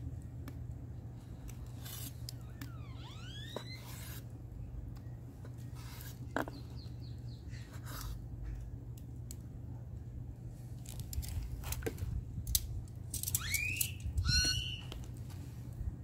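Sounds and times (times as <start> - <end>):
bird calling: 13.4 - 15.0.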